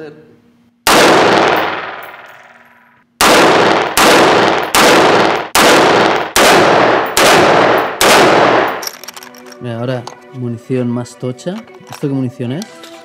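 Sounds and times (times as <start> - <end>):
rifle shots echoing: 0.9 - 2.6, 3.2 - 8.9.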